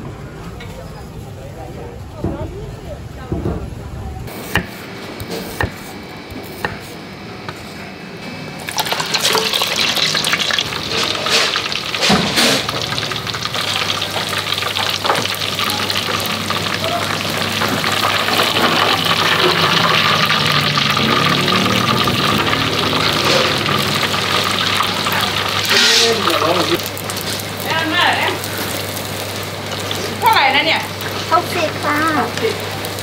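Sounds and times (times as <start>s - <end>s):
cleaver chopping on wooden board: 4.5s - 4.8s
food sizzling in hot oil: 8.5s - 33.0s.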